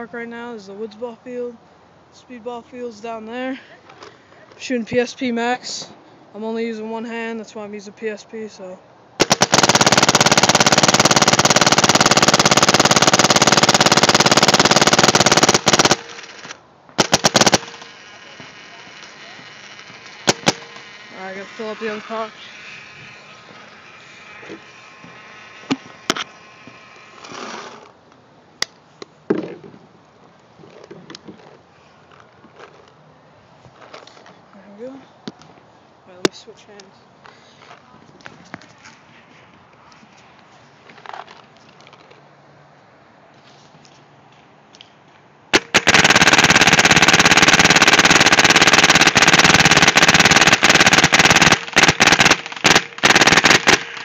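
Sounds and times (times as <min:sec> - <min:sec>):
paintball marker firing: 0:19.9 - 0:20.8.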